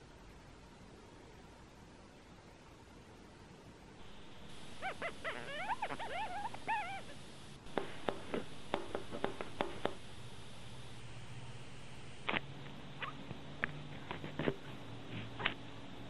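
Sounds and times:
squeaky chirps: 0:04.1 - 0:07.6.

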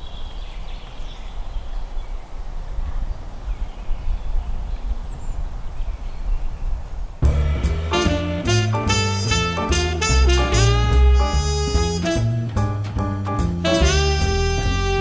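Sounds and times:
faint birdsong: 0:00.0 - 0:07.2
wind buffeting microphone: 0:00.0 - 0:07.4
low rumble: 0:07.2 - 0:14.4.

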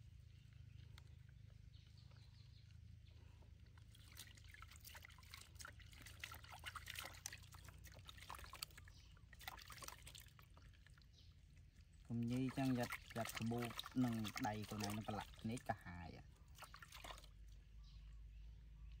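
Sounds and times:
low steady hum: 0:00.0 - 0:19.0
water splashing in a basin: 0:03.5 - 0:18.3.

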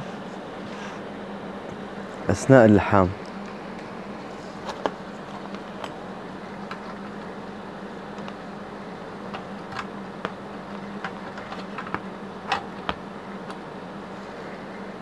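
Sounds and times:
welding machine hum: 0:03.0 - 0:14.3.

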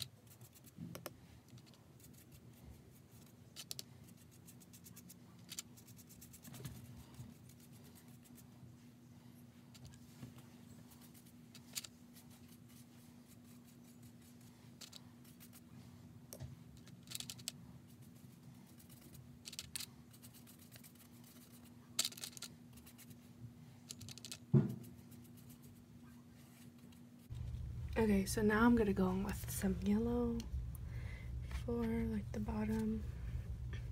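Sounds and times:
steady low hum: 0:00.0 - 0:33.9
dull knock: 0:24.5 - 0:24.8.

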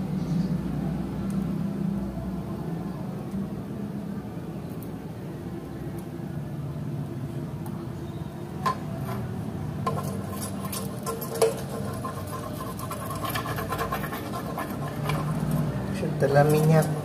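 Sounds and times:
metal spoon scraping a pan: 0:08.7 - 0:17.0
oil crackling in a skillet: 0:09.8 - 0:15.7.

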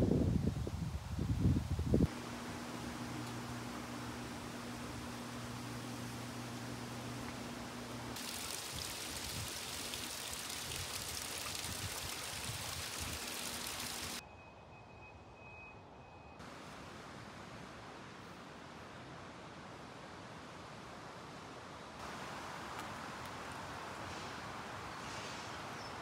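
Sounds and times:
background hiss: 0:00.0 - 0:14.2, 0:16.4 - 0:26.0
low hum: 0:02.1 - 0:08.2
running mountain water: 0:02.1 - 0:14.2, 0:16.4 - 0:26.0.

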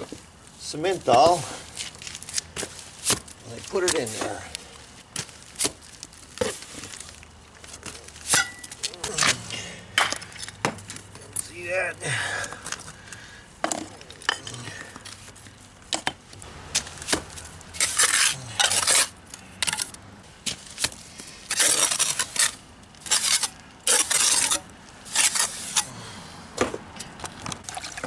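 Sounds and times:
trowel scraping wet mortar: 0:17.8 - 0:20.0, 0:21.5 - 0:25.9.

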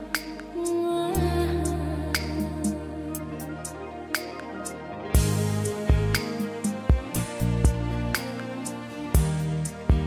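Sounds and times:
sustained low bass notes: 0:01.2 - 0:08.2.

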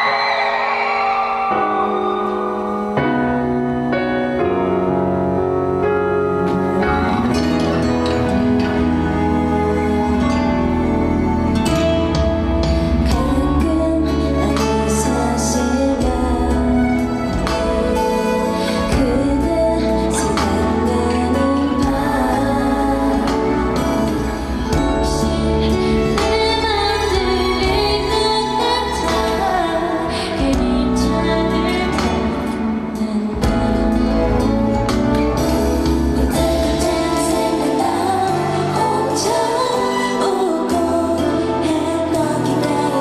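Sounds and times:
soft backing track with bass: 0:02.7 - 0:43.0
women singing a ballad: 0:13.0 - 0:34.6, 0:35.8 - 0:43.0.

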